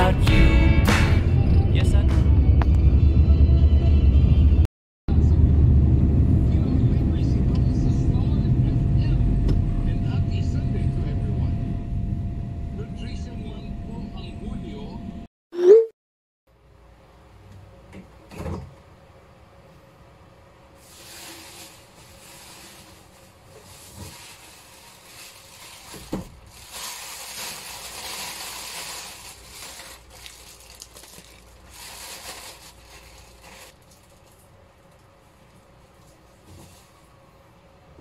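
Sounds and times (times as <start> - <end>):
plastic bags rustling: 20.8 - 34.6.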